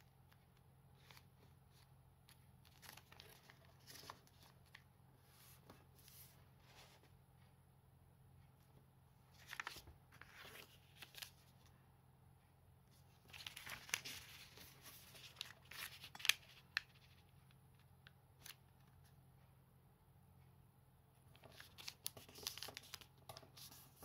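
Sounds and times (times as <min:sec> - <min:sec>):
paper rustling and crinkling: 0:01.0 - 0:04.8, 0:09.3 - 0:11.6, 0:13.2 - 0:17.3, 0:21.3 - 0:24.0.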